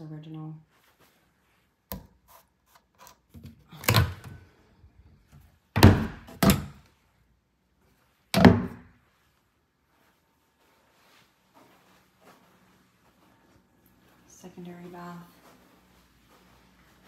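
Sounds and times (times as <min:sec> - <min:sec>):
cupboard door thuds: 0:05.8 - 0:06.5.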